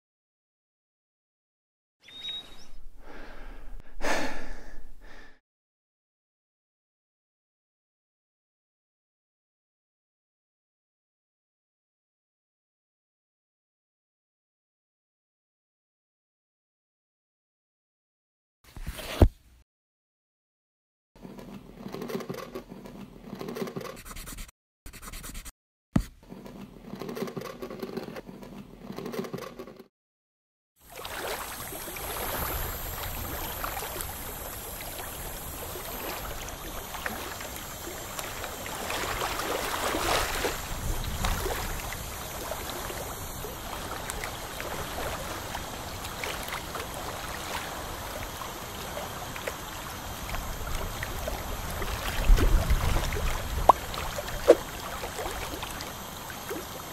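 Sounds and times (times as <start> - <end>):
watery hiss and gurgle: 30.8 - 56.9.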